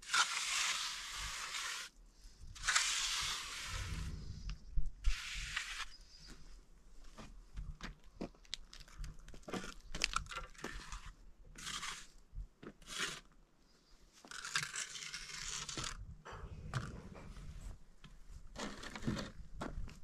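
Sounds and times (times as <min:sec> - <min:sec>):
trowel scraping cement: 0:00.0 - 0:02.0, 0:02.6 - 0:04.2, 0:05.0 - 0:06.2, 0:10.5 - 0:13.3, 0:14.2 - 0:16.0.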